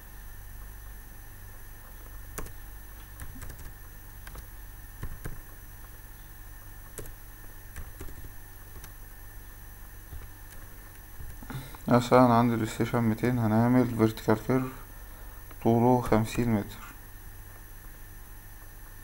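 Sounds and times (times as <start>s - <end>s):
low electrical hum: 0.0s - 19.0s
keyboard typing clicks: 2.3s - 5.5s, 6.9s - 9.0s, 10.1s - 11.5s.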